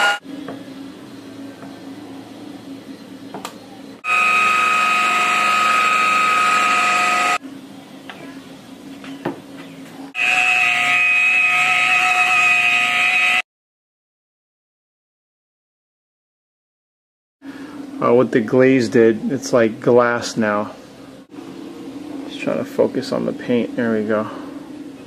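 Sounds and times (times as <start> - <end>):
electric polisher whining: 0.0 - 0.2, 4.0 - 7.4, 10.2 - 13.4.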